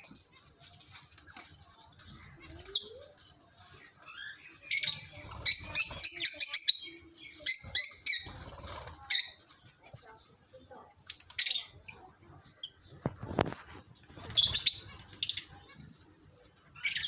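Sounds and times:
lovebirds chattering: 0.0 - 17.0
shrill bird chirps: 14.2 - 15.6.

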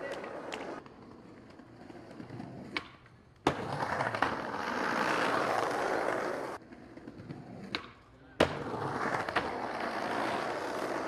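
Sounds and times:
skateboard wheels rolling on concrete: 0.0 - 11.0
skateboard landing slap: 2.7 - 4.8, 7.6 - 9.8.

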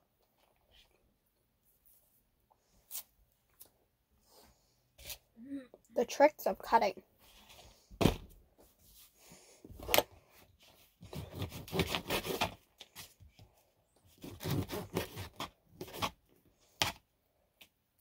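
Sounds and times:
knife sawing through sausage: 14.2 - 15.4.

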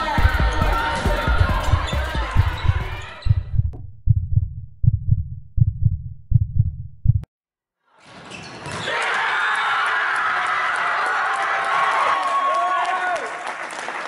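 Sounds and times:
crowd cheering in a gym: 0.0 - 3.2, 8.0 - 14.0
heartbeat-like deep bass thumps: 0.0 - 7.3.

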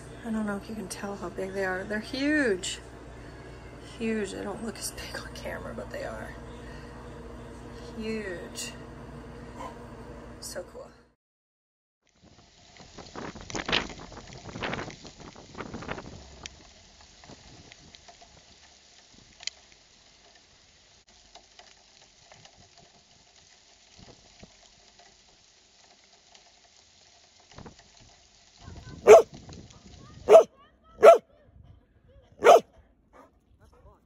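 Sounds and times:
dog barking: 9.6 - 9.8, 29.0 - 29.3, 30.3 - 31.3, 32.4 - 33.3.

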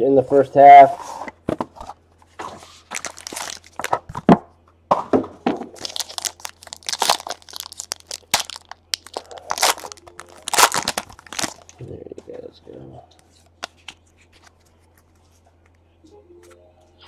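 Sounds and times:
foil wrapper crinkling: 2.9 - 4.1, 5.7 - 11.8.

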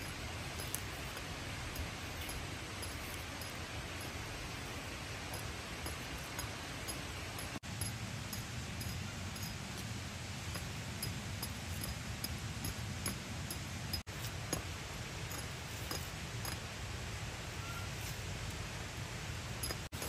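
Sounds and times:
water rushing: 0.0 - 20.0
faint high chirps: 17.5 - 18.1.

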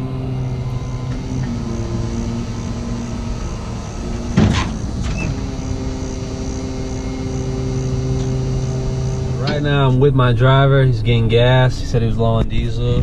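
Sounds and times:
diesel tow truck running: 0.0 - 13.0
hydraulics working: 0.0 - 13.0
loud metallic clunk: 4.2 - 5.6.

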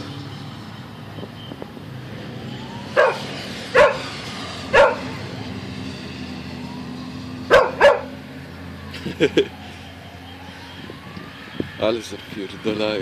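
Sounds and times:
low hum of traffic: 0.0 - 13.0
dog barking: 3.0 - 4.1, 4.7 - 5.2, 7.5 - 8.2.

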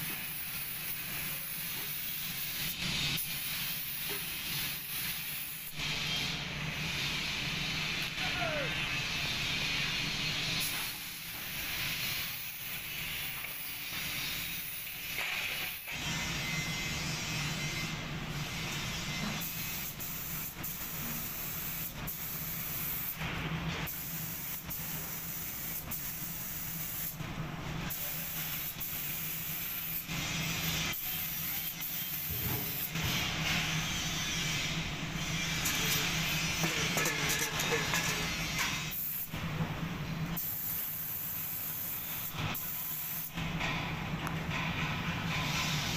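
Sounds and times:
paint spray gun hissing: 19.5 - 23.2, 23.9 - 27.2, 27.9 - 33.2, 35.7 - 39.3, 40.4 - 43.3.

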